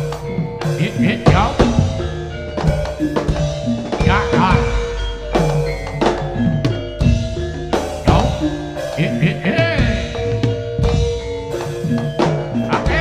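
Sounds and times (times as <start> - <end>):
hand drums striking a heavy beat: 0.0 - 13.0
ringing gong-chime and metallophone: 0.0 - 13.0
wavering high melodic line: 0.0 - 13.0.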